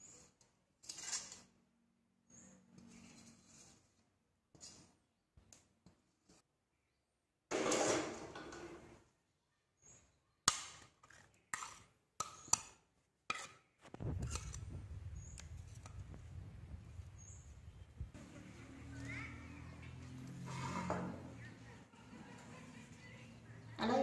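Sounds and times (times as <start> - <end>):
metal spoon scraping a wok: 0.8 - 1.5, 7.5 - 8.8, 11.0 - 12.7, 13.3 - 16.2, 20.2 - 21.4
steady low hum: 14.0 - 18.4.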